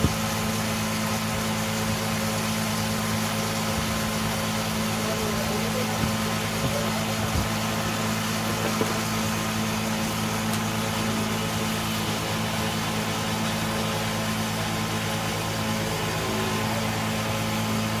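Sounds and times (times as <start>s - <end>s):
lathe motor hum: 0.0s - 18.0s
chisel scraping spinning wood: 3.6s - 9.3s.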